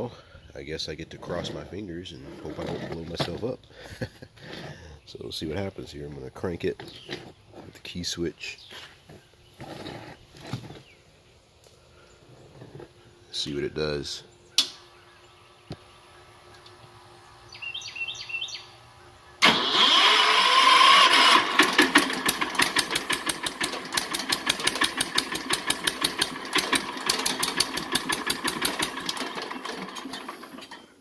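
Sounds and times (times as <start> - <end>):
electric starter cranking engine: 19.4 - 31.0.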